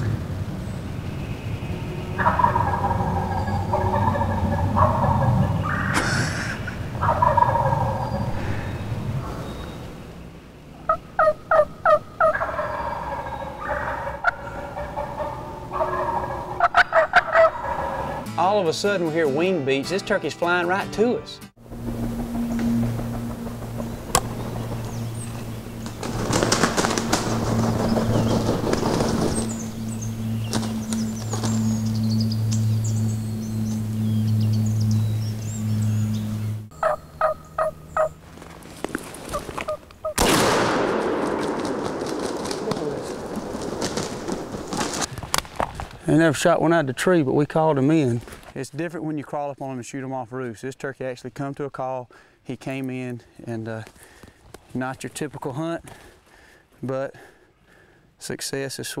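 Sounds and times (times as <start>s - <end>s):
songbirds chirping faintly: 0.0s - 40.2s, 45.7s - 59.0s
turkey gobbling: 2.1s - 8.7s, 10.8s - 18.3s, 22.0s - 35.6s, 36.4s - 40.7s, 41.4s - 45.1s
turkey call yelps: 2.2s - 8.3s, 10.8s - 18.2s, 36.7s - 38.2s
steady low hum: 21.6s - 39.2s.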